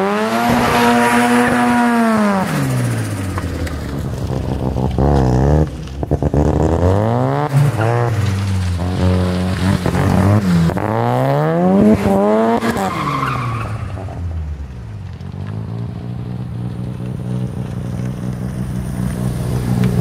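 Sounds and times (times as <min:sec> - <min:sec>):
tire squeal: 0:00.0 - 0:03.7, 0:07.5 - 0:10.9, 0:11.8 - 0:14.4
car engine revving: 0:00.0 - 0:20.0.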